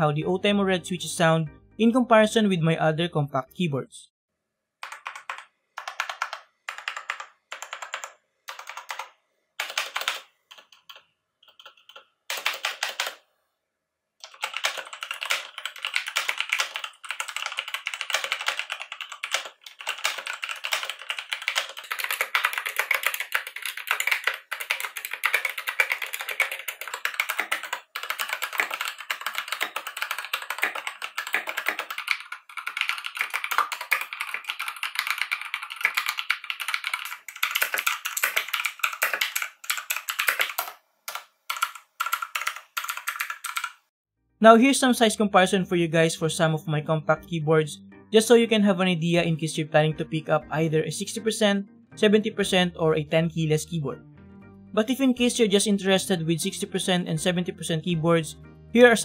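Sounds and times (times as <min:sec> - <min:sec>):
typing on mechanical keyboard: 0:04.8 - 0:13.2, 0:14.2 - 0:43.9.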